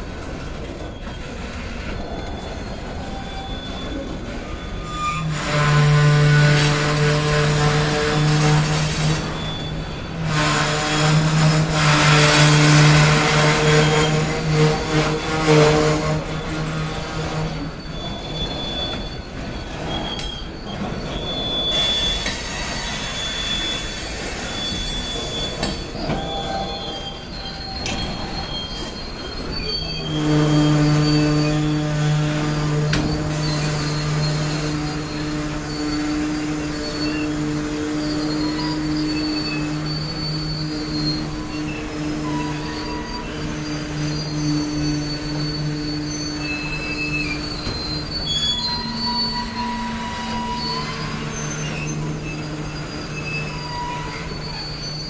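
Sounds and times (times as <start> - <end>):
freight train rolling past: 0.0 - 55.0
train wheels squealing on rails: 0.0 - 55.0.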